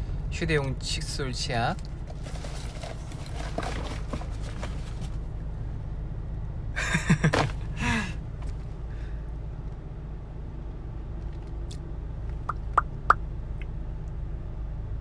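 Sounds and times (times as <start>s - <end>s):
car rumble heard from inside: 0.0s - 15.0s
faint rustling: 2.1s - 5.3s
person laughing: 6.8s - 8.2s.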